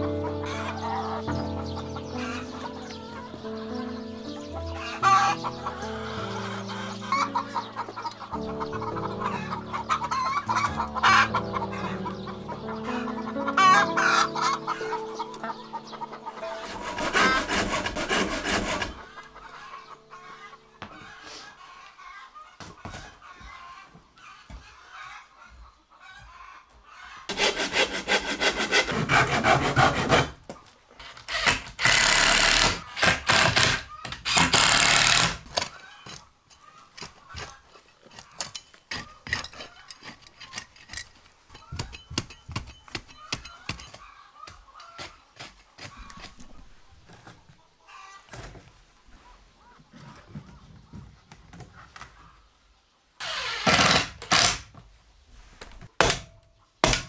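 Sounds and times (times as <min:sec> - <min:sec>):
saw cutting wood: 0:16.4 - 0:19.7, 0:27.3 - 0:36.2, 0:53.2 - 0:54.6.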